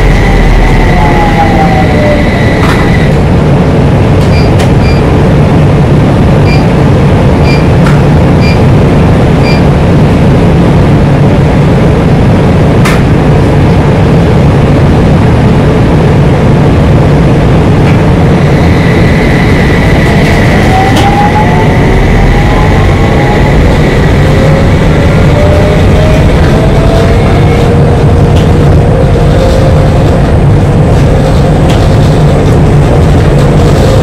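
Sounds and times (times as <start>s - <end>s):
rising whine: 0.0s - 5.0s, 13.4s - 34.0s
tram running rumble: 0.0s - 34.0s.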